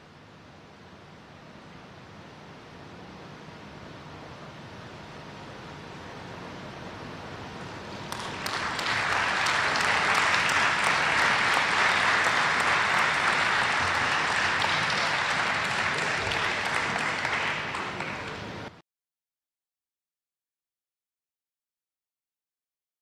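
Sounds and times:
audience applauding: 8.1s - 18.7s.

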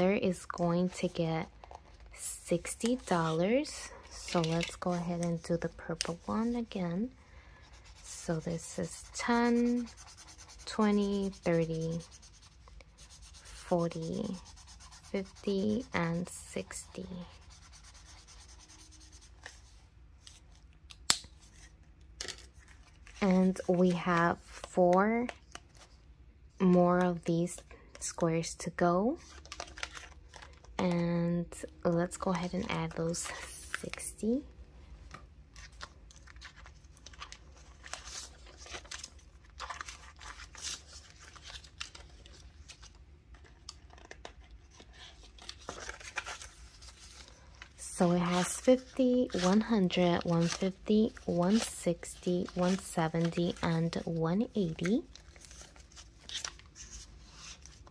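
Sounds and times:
banknotes rustling against plastic: 0.0s - 20.7s, 21.4s - 26.0s, 29.1s - 30.8s, 35.0s - 57.9s
paper rustle: 35.5s - 57.9s.

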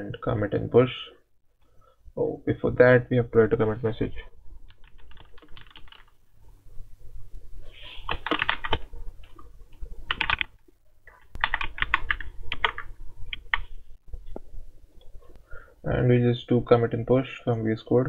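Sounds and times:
keyboard typing: 4.7s - 6.2s, 8.0s - 13.7s.

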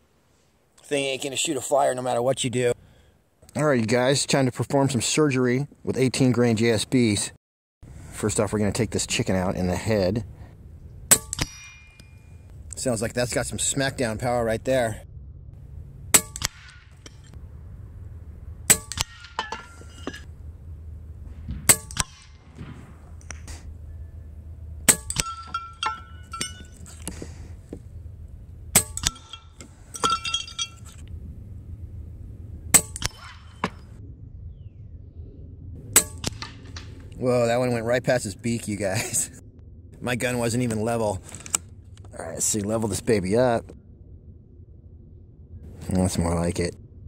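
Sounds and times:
pellets clanging off metal targets: 24.9s - 27.1s, 28.8s - 31.0s.

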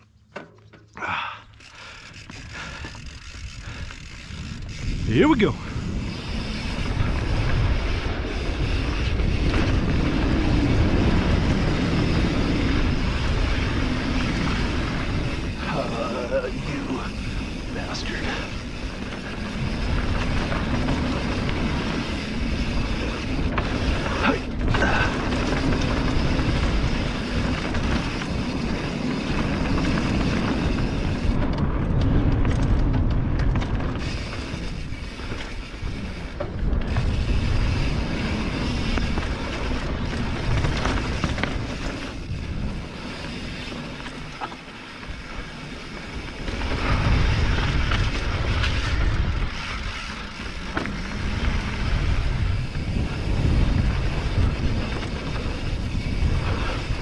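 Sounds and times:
bike frame rattle: 0.0s - 57.0s
bike tyre rumble: 0.0s - 57.0s
wind buffeting microphone: 2.1s - 57.0s.

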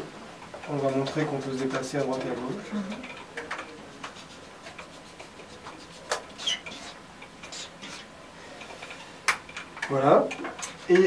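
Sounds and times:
marker squeaking on whiteboard: 3.1s - 8.2s.

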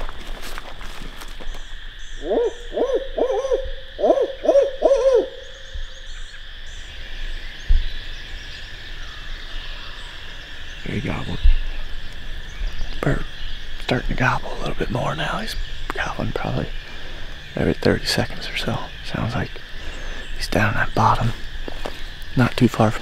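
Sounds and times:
high-pitched background drone: 1.8s - 7.9s
owl hooting: 2.0s - 7.4s.

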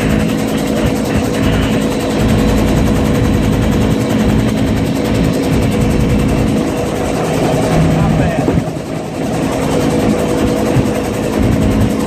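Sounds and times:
helicopter turbine and rotor drone: 0.0s - 12.0s
rushing air: 4.8s - 11.8s.

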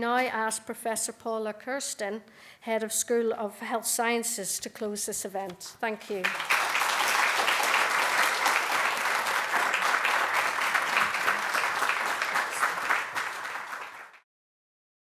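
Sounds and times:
audience applauding: 6.2s - 14.2s.

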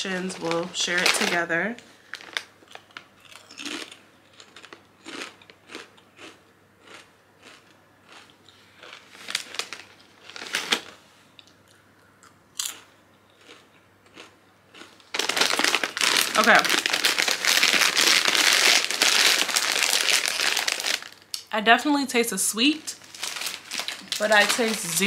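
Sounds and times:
chips being chewed: 2.2s - 21.3s, 23.1s - 25.0s.

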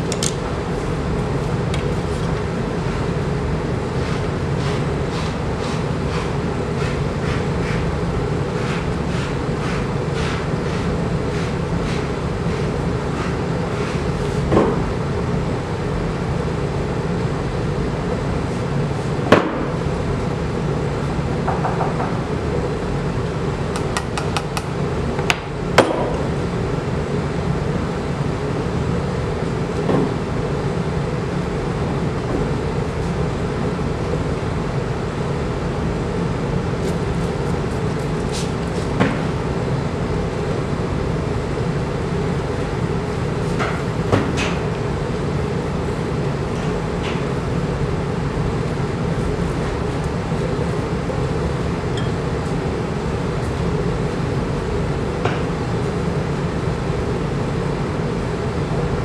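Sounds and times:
low mechanical hum: 0.0s - 59.0s
taps of tools on wooden board: 23.8s - 24.7s.

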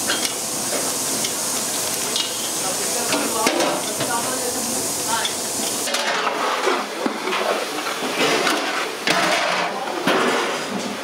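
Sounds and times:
kitchen background noise: 0.0s - 11.0s
steel pots and lids clattering: 2.0s - 4.4s, 5.1s - 10.9s.

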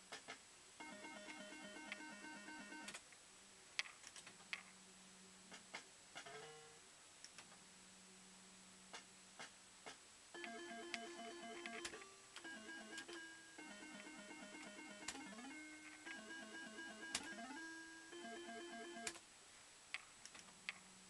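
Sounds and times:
electronic beeping tune: 10.4s - 19.1s.

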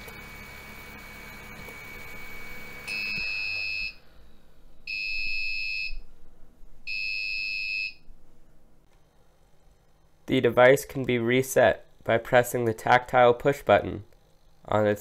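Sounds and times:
printer humming: 0.0s - 3.8s
high-pitched buzzer beeps: 0.3s - 4.0s, 4.9s - 6.0s, 6.9s - 8.0s.

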